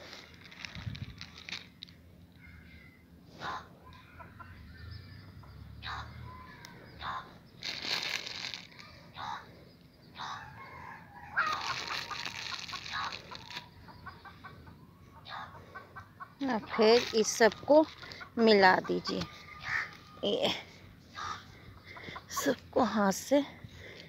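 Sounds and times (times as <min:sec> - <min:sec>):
chickens clucking: 0:03.3 - 0:07.4, 0:08.8 - 0:22.6.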